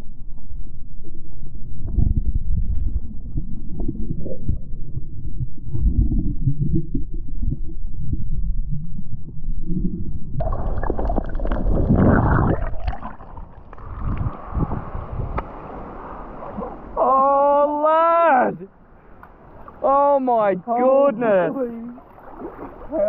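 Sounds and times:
muffled underwater rumbling: 0.0s - 17.1s
water splashing: 10.4s - 17.3s, 21.3s - 23.0s.

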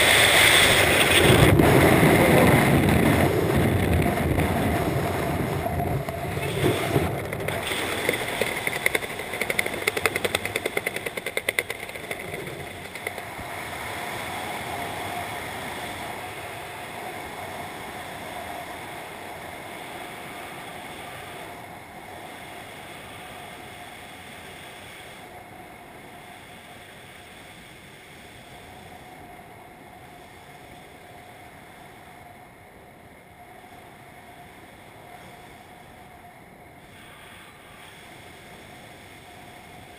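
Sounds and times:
wind rushing over microphone: 0.0s - 24.6s.

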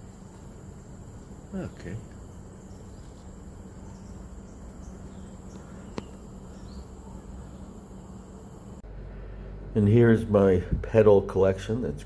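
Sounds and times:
high-pitched insect chorus: 0.0s - 8.8s
low steady hum: 0.0s - 12.0s.

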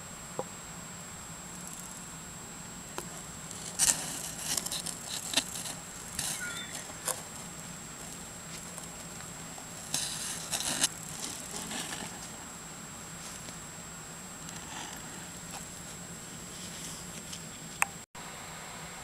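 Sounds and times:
hedgehog chewing crunchily: 3.0s - 12.5s.

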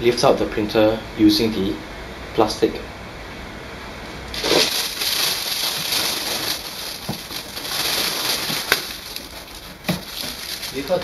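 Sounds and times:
plastic bag rustling: 4.3s - 11.0s.

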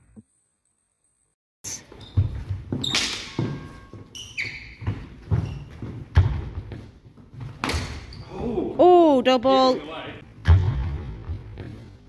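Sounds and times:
footsteps on wooden floor: 1.8s - 7.6s.

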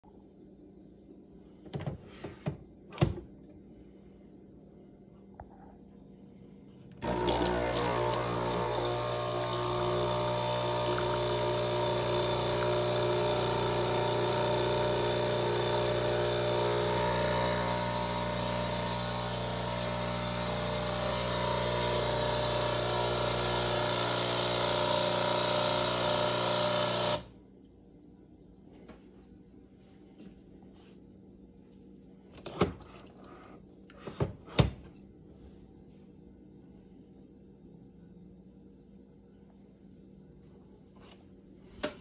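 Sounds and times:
espresso machine pump buzzing: 7.0s - 27.3s.

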